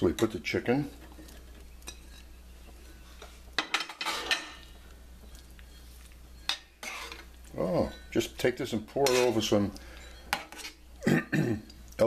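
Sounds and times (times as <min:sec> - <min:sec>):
metal spoon scraping a steel pan: 0:01.8 - 0:02.4, 0:03.2 - 0:04.6, 0:05.7 - 0:08.2, 0:09.0 - 0:10.8.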